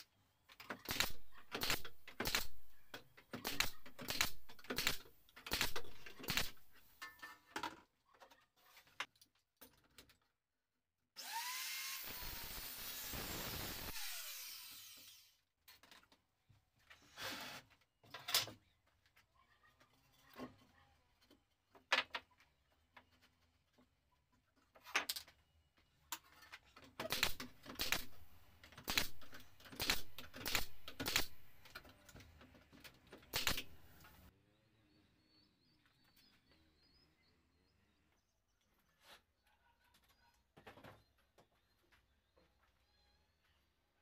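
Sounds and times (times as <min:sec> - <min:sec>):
electric drill driving screws: 0:11.2 - 0:15.4, 0:27.1 - 0:28.3, 0:28.9 - 0:31.8, 0:33.4 - 0:34.1.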